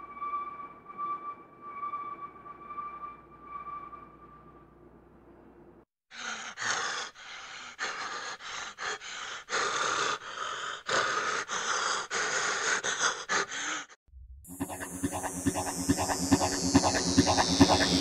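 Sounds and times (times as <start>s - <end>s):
person breathing hard: 6.1s - 14.0s.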